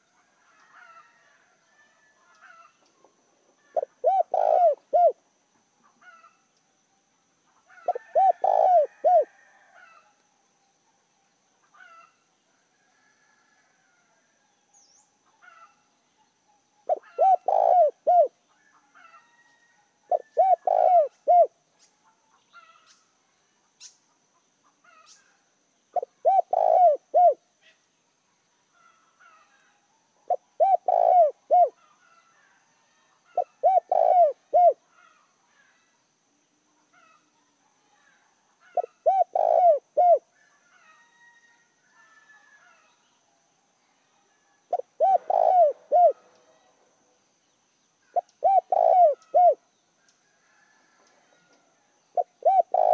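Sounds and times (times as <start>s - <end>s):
dove cooing: 3.6s - 5.2s, 7.7s - 9.5s, 16.8s - 18.4s, 20.1s - 21.6s, 26.0s - 27.4s, 30.3s - 31.9s, 33.3s - 34.8s, 38.7s - 40.3s, 44.7s - 46.7s, 48.1s - 49.6s, 52.1s - 52.9s.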